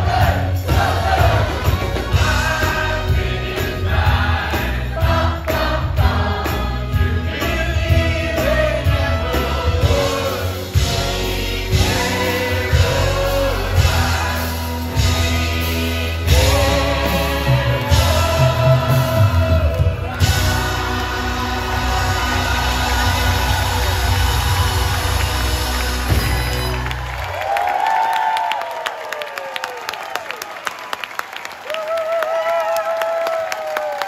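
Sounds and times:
chorus singing with live band: 0.0 - 26.9.

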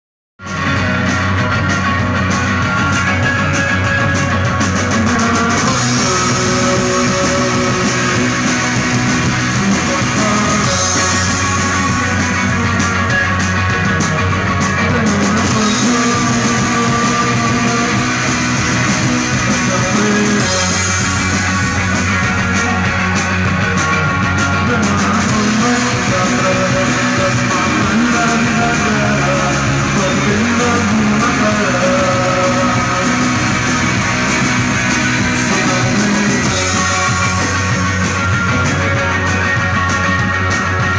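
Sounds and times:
electric guitar: 0.4 - 40.9
live rock band: 0.4 - 40.9
person singing: 4.7 - 22.9, 24.4 - 37.8.

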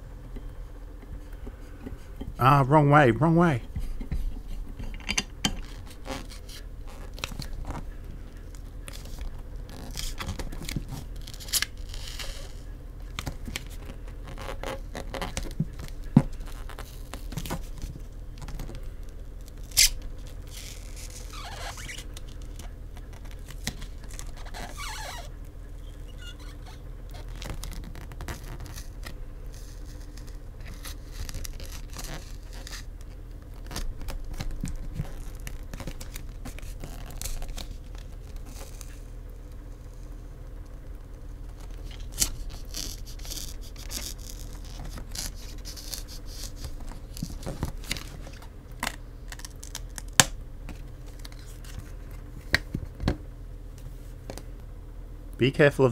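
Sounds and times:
card scraping through adhesive: 41.9 - 48.1.

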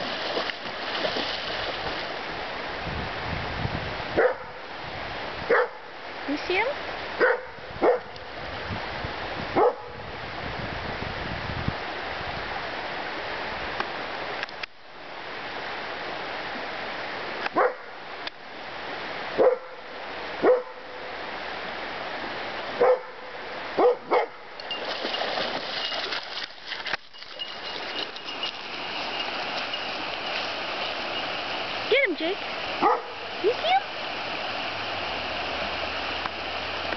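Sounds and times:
shallow river rushing: 0.0 - 3.4, 11.8 - 36.9
dog barking: 4.2 - 4.5, 5.5 - 5.8, 7.2 - 8.1, 9.6 - 10.0, 17.6 - 17.8, 19.4 - 19.8, 20.4 - 20.8, 22.8 - 23.2, 23.8 - 24.4, 32.8 - 33.2.

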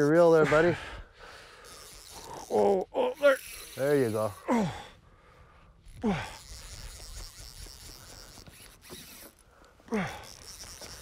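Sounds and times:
fishing reel drag ratcheting: 0.0 - 4.8, 5.7 - 11.0
person exclaiming: 2.4 - 3.4.

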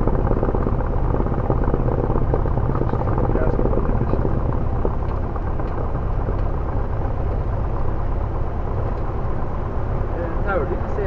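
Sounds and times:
light aircraft piston engine: 0.0 - 11.0.

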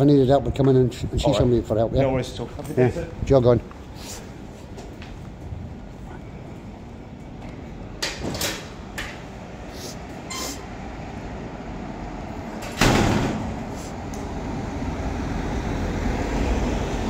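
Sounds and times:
traffic rumble: 0.0 - 17.0
metal door opening: 8.0 - 9.3, 10.2 - 10.7, 12.5 - 13.7
door banging shut: 12.6 - 13.6.

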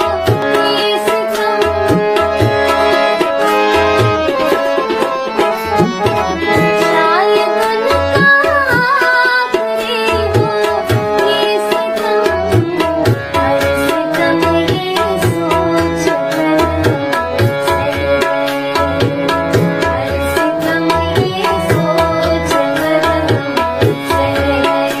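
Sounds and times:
instrumental backing: 0.0 - 25.0
steady drum rhythm: 1.4 - 9.3.

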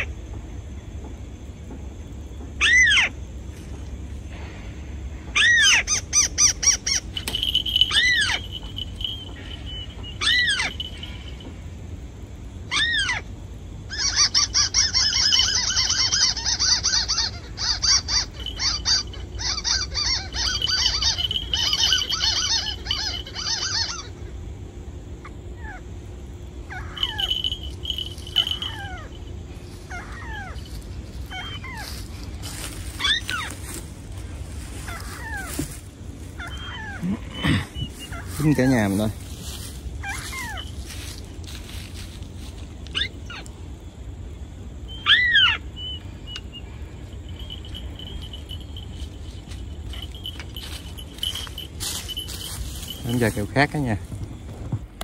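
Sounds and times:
bird chirps: 5.3 - 11.6, 13.9 - 24.4, 26.6 - 43.7, 44.8 - 54.5
fast bird trill: 5.4 - 11.5, 13.9 - 24.4, 26.6 - 43.6, 44.9 - 54.4.

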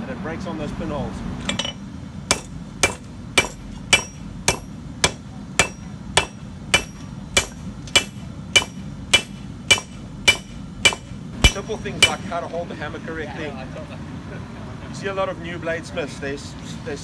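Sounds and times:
hammer striking steel on anvil: 1.5 - 12.4.

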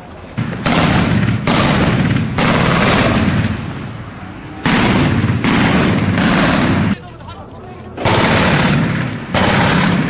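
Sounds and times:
machine-gun fire bursts: 0.6 - 3.6, 4.7 - 7.0, 8.0 - 10.0.

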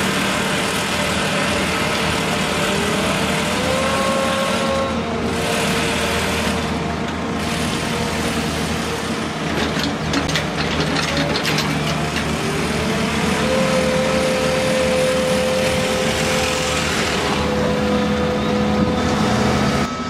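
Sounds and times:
crane diesel engine running: 0.0 - 20.0
sharp clicks and rattles: 9.6 - 12.3
steady whine: 10.6 - 20.0.

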